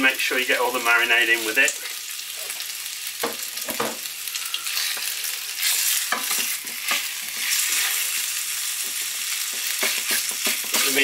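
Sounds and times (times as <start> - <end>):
meat sizzling in hot oil: 0.0 - 11.0
spatula tapping and scraping pan: 6.1 - 8.0, 8.8 - 11.0.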